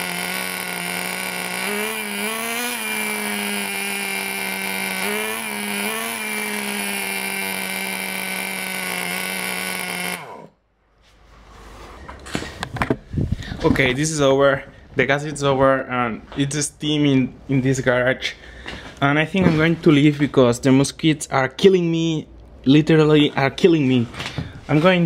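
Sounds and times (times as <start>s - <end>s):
small two-stroke engine running: 0.0s - 10.6s.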